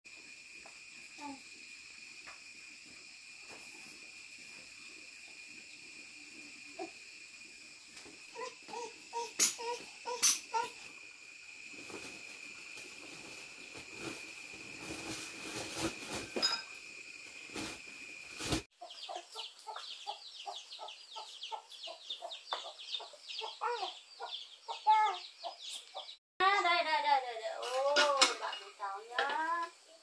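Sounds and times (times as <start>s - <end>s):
cloth and plastic bag rustling: 11.8s - 16.5s
chicks peeping: 18.8s - 26.2s.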